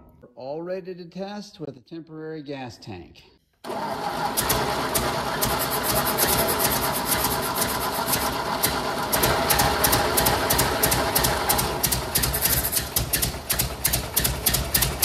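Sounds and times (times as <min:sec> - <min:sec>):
tractor engine idling: 0:03.7 - 0:15.0
rapid sharp valve ticking: 0:05.4 - 0:15.0.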